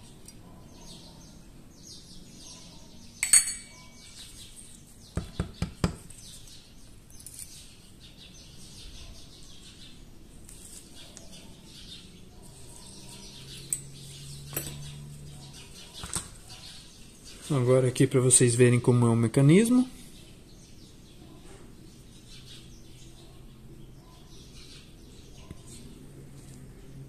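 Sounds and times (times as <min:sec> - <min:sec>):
metal parts clicking and clinking: 0:07.1 - 0:07.7, 0:14.5 - 0:14.9.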